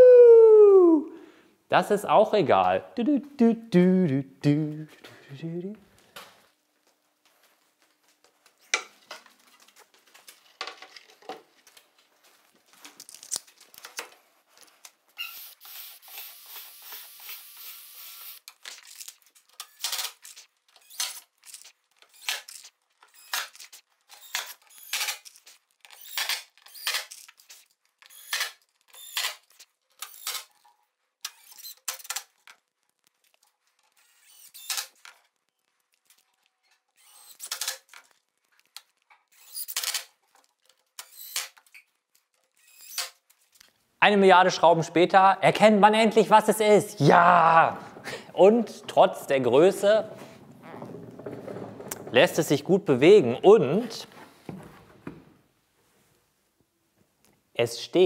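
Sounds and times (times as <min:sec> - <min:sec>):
drill driving screws into wood: 0:15.2 - 0:30.5, 0:31.2 - 0:32.3, 0:33.9 - 0:35.0, 0:37.0 - 0:37.9, 0:39.3 - 0:40.1, 0:41.0 - 0:41.6, 0:42.5 - 0:43.2
drill clicking: 0:15.3 - 0:18.5, 0:19.6 - 0:27.1, 0:33.9 - 0:35.1, 0:37.0 - 0:37.8, 0:39.3 - 0:40.1.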